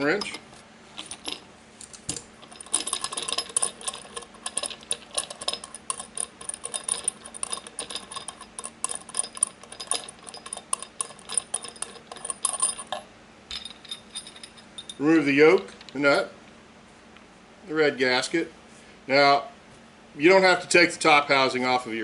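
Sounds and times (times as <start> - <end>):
metal ticking and clinking: 2.1 - 15.0.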